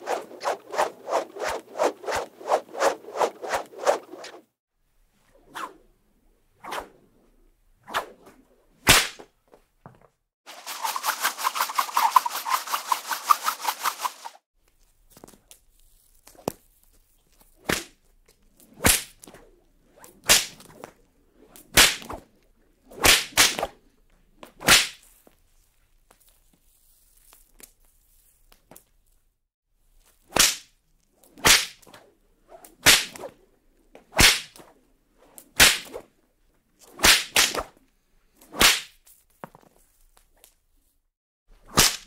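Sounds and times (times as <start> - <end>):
whip cracking: 0.0 - 4.4, 7.9 - 9.3, 10.5 - 14.4, 17.6 - 18.0, 18.6 - 22.3, 22.9 - 23.8, 24.4 - 25.0, 30.2 - 32.0, 32.6 - 33.4, 34.0 - 36.1, 36.8 - 37.8, 38.4 - 39.0, 41.6 - 42.0
whip swishing: 0.0 - 4.5, 6.6 - 7.0, 7.8 - 9.3, 10.5 - 14.4, 17.5 - 23.8, 24.4 - 25.1, 30.1 - 33.4, 34.0 - 36.2, 36.8 - 37.8, 38.4 - 39.0, 41.6 - 42.0.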